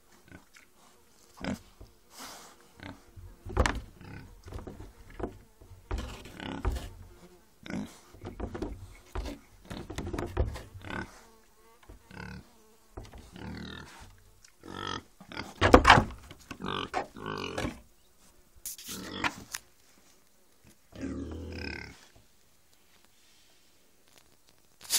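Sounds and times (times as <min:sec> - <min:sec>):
pig grunting: 0:01.4 - 0:01.8, 0:02.8 - 0:04.7, 0:06.0 - 0:06.8, 0:07.6 - 0:08.4, 0:10.8 - 0:11.2, 0:13.1 - 0:14.0, 0:14.6 - 0:15.6, 0:16.6 - 0:17.8, 0:20.9 - 0:22.1.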